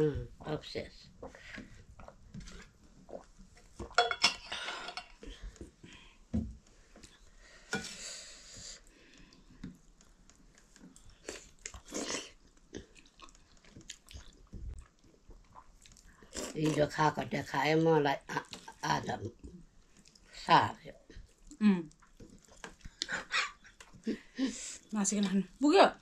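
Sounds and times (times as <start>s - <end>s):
person chewing: 1.2s - 4.0s, 8.6s - 16.9s, 21.2s - 24.4s
plates and utensils clinking: 4.0s - 5.2s.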